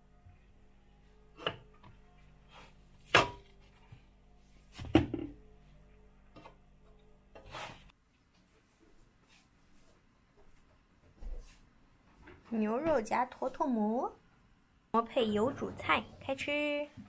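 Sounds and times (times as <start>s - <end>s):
faint background music: 0.0s - 8.0s, 12.3s - 17.0s
kitchen knocks and clatters: 3.1s - 3.5s.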